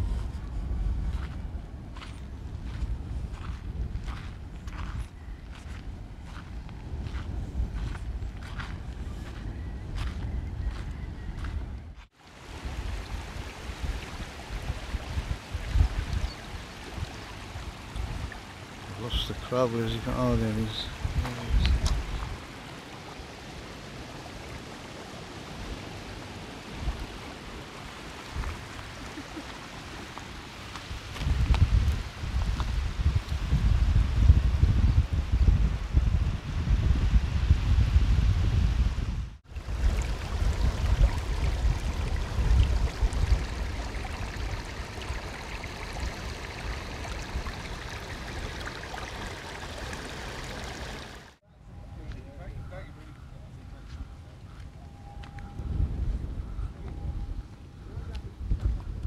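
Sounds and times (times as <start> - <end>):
wind rumble on microphone: 0.0 - 19.3, 20.0 - 22.5, 24.5 - 51.2, 51.8 - 59.0
water trickling over pebbles: 39.5 - 51.3
seawater washing over rocks: 39.5 - 51.4.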